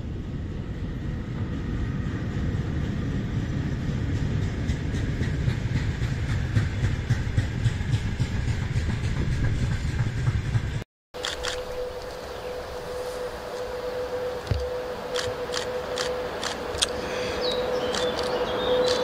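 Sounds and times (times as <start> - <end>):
train rolling past: 0.0 - 19.0
wheels clicking over rail joints: 14.4 - 19.0.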